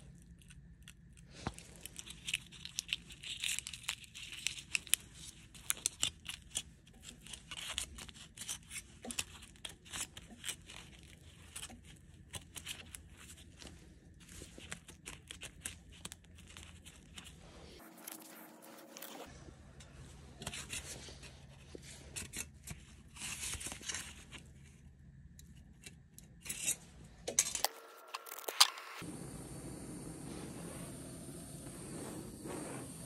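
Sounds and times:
aluminium foil crinkling: 0:00.0 - 0:19.3.

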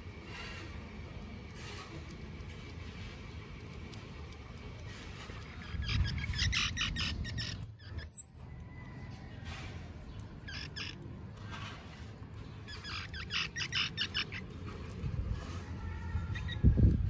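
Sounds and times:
high-pitched animal chirps: 0:05.7 - 0:08.4
shrill animal squeaks: 0:12.7 - 0:14.4.

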